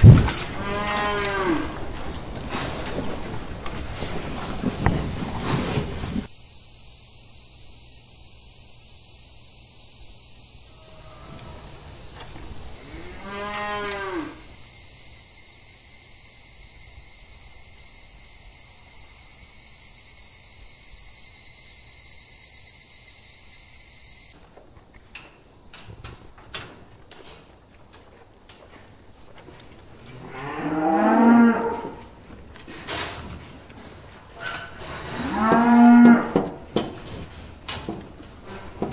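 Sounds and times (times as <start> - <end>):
cow mooing: 0.5 - 1.9, 10.7 - 11.8, 12.8 - 14.4, 35.2 - 36.4
high-pitched hiss: 6.2 - 24.4
short knocks in a barn: 34.5 - 38.9.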